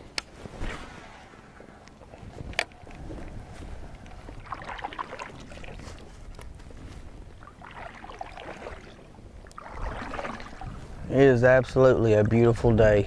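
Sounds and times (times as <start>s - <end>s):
low steady rumble: 0.0s - 13.0s
paddle splashing water: 0.7s - 11.1s.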